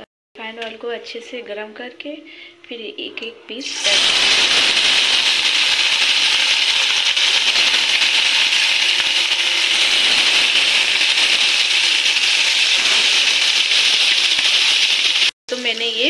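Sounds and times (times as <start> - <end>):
fish sizzling in deep fryer: 3.6 - 16.0.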